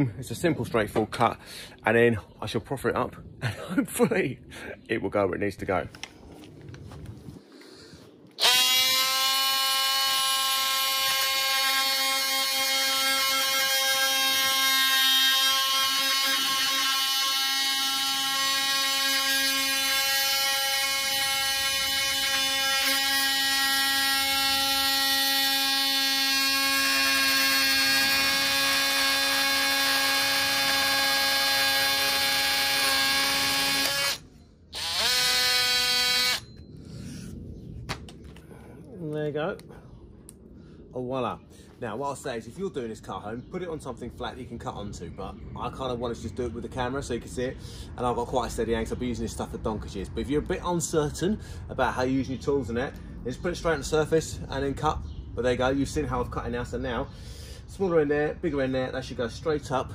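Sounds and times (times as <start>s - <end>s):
oscillating multi-tool cutting plastic: 8.4s - 36.7s.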